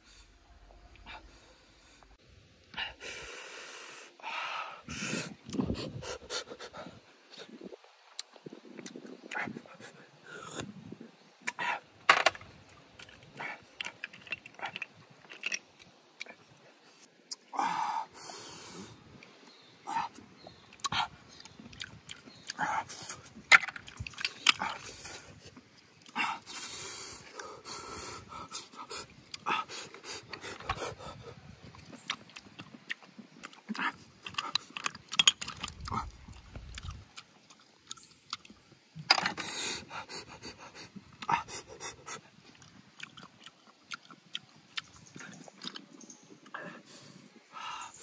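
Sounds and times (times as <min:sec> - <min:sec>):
person slurping snails: 0:19.9 - 0:47.2
person chewing: 0:20.4 - 0:26.6, 0:28.6 - 0:38.7, 0:40.1 - 0:46.6.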